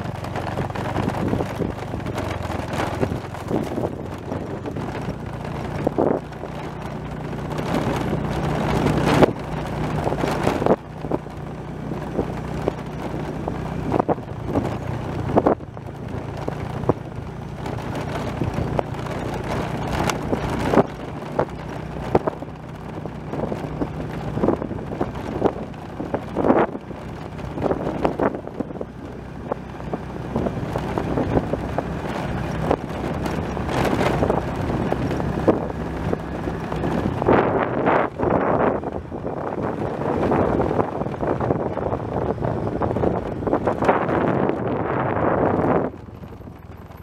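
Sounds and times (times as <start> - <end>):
wind buffeting microphone: 0.0 - 47.0.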